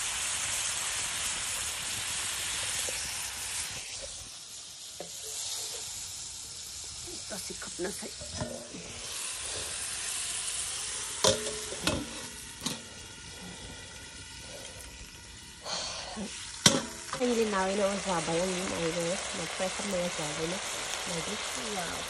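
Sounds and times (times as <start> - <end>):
curry sizzling in a wok: 0.0 - 22.0
metal clanks on a wok: 8.2 - 8.8, 11.2 - 12.9, 16.6 - 17.4.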